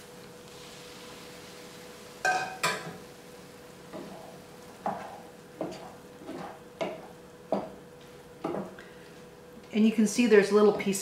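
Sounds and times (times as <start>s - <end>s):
metal ladle clinking on pan: 2.2s - 2.9s
wooden spoon scraping rice: 3.9s - 7.0s.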